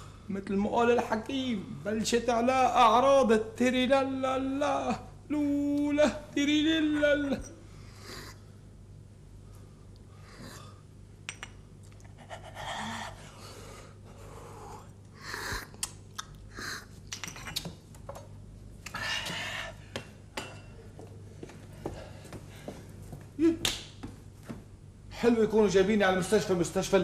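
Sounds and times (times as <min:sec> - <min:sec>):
cup and saucer clicks: 0:11.3 - 0:11.6.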